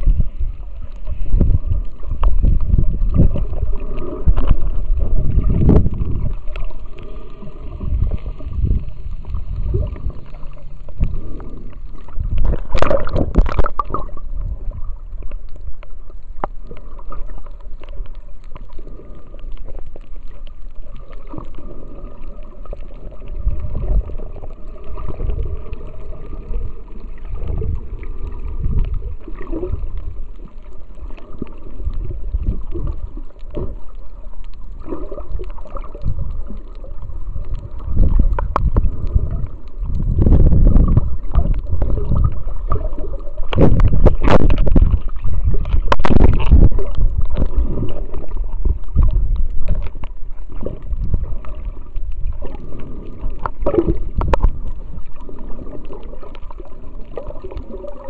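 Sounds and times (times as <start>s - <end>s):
deep rumble: 0.0s - 16.6s, 35.4s - 57.9s
muffled water sloshing underwater: 0.0s - 58.0s.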